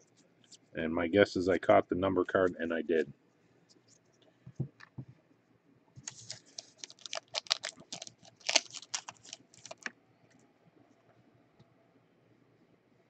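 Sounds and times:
foil wrapper tearing and crinkling: 0:06.0 - 0:09.9.

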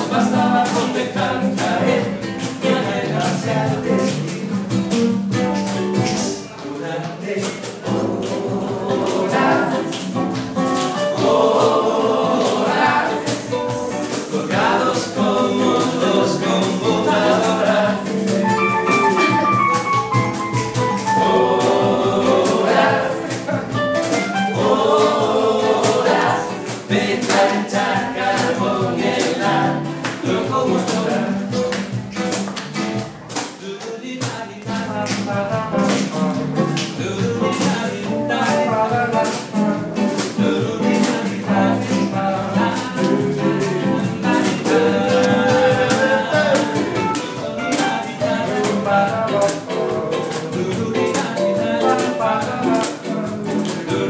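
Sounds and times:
man singing: 0:00.0 - 0:10.2, 0:10.9 - 0:19.7, 0:20.8 - 0:23.8, 0:24.5 - 0:31.7, 0:33.6 - 0:54.0
classical guitar strummed: 0:00.0 - 0:54.0.

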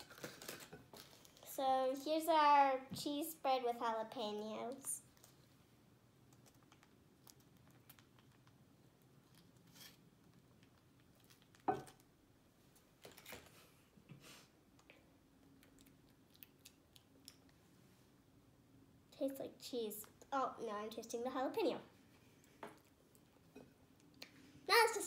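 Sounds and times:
pouch crinkling and rustling: 0:00.0 - 0:01.4.

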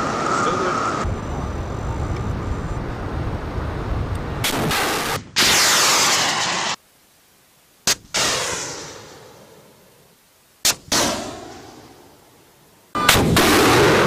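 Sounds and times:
steady rushing noise: 0:00.0 - 0:06.8
missile launch blast: 0:04.4 - 0:06.8, 0:13.0 - 0:14.0
rocket motor rushing hiss: 0:04.4 - 0:06.8
sharp crack: 0:04.4 - 0:06.8, 0:07.9 - 0:09.2, 0:10.6 - 0:12.0, 0:13.0 - 0:14.0.

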